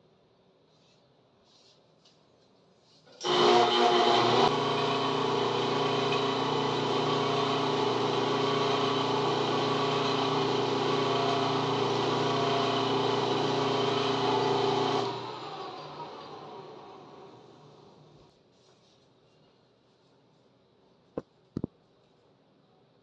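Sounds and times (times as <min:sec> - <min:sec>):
lathe motor humming: 0:03.2 - 0:18.3.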